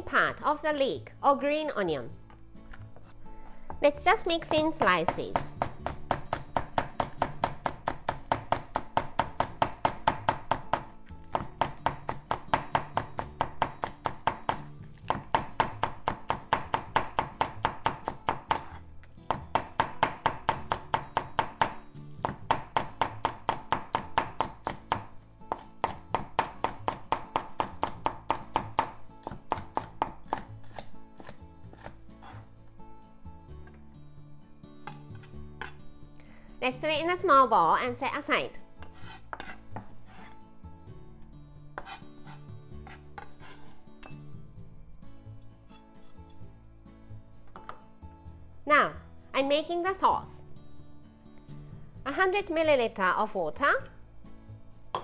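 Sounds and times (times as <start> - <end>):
background music: 0.0 - 55.0
knife chopping on wooden board: 4.4 - 32.5, 34.8 - 35.8, 38.8 - 40.4, 41.8 - 43.8.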